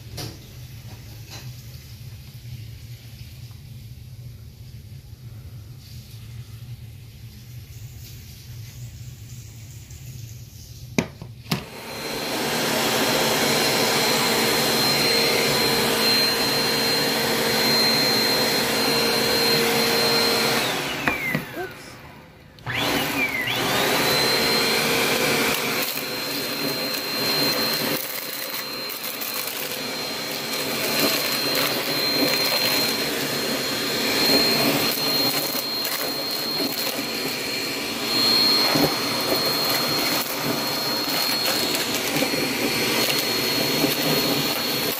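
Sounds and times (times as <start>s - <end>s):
vacuum cleaner whining: 10.9s - 44.9s.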